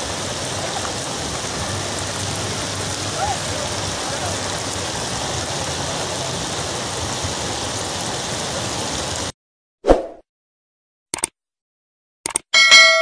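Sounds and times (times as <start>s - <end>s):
heavy rain on standing water: 0.0s - 9.3s.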